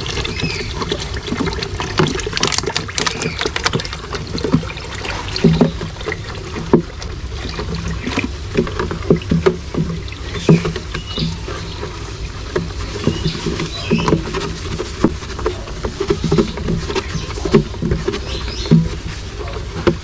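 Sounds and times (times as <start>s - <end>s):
plastic bag crinkling: 0.0s - 5.2s
water splashing and sloshing: 0.0s - 20.0s.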